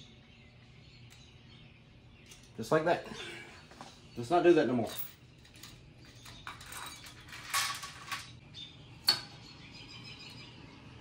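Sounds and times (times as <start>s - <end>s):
metal parts scraping and clinking: 4.7s - 8.4s.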